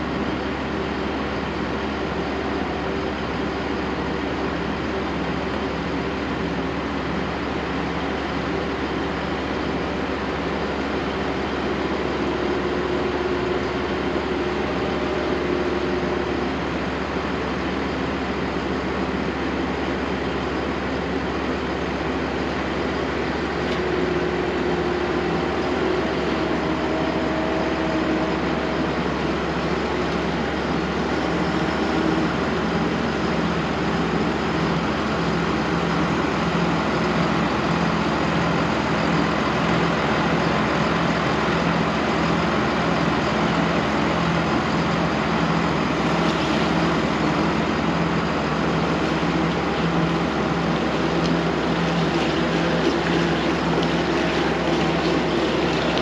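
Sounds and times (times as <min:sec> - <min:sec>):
truck engine running: 0:00.0 - 0:56.0
road noise: 0:45.6 - 0:56.0.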